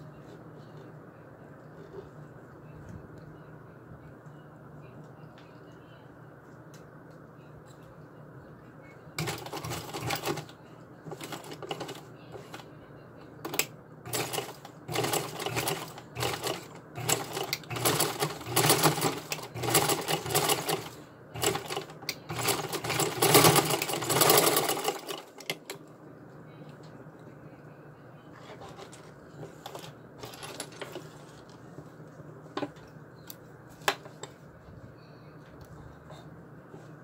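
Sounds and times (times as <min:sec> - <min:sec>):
sewing machine stitching: 0:09.2 - 0:10.5, 0:11.1 - 0:12.6, 0:13.5 - 0:25.6.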